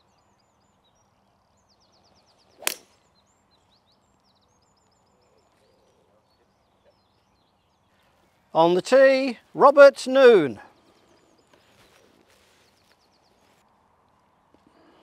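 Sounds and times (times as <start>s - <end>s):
birds chirping faintly: 0.0s - 15.0s
golf club striking ball: 2.6s - 2.9s.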